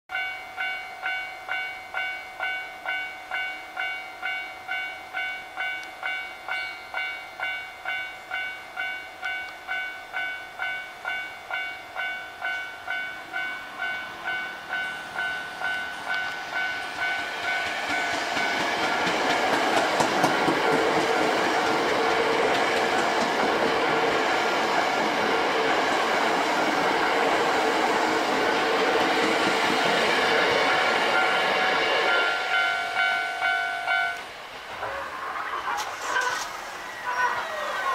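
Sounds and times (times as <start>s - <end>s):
level crossing bell ringing: 0.1s - 18.6s, 30.7s - 34.2s
electric train passing at speed: 0.1s - 37.9s.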